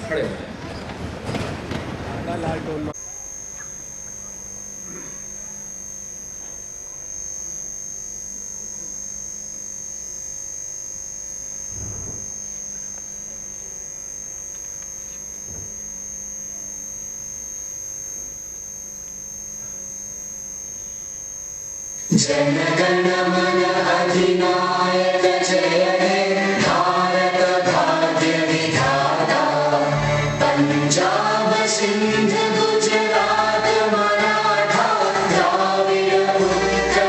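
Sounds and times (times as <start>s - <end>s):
public address system hum: 2.6s - 9.5s
high-pitched whine: 2.7s - 37.0s.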